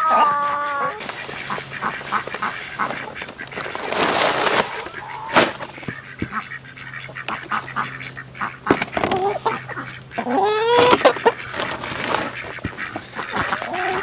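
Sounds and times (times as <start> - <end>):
ducks quacking: 0.0 - 14.0
poultry feed pouring into bin: 1.0 - 5.9, 10.8 - 14.0.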